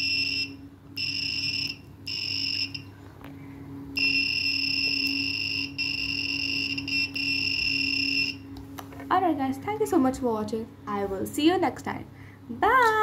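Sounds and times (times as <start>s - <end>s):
buzzer beeping: 0.0s - 2.9s, 4.0s - 8.4s.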